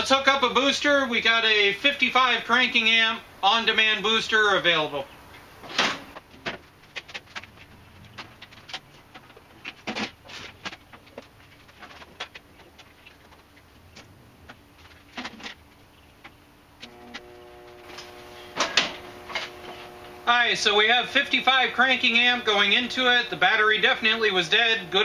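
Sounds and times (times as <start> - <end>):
steady hum: 16.8 - 25.0.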